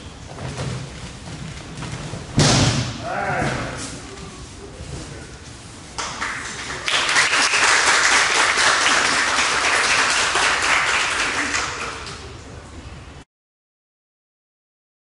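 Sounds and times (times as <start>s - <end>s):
audience applauding: 6.0s - 12.1s.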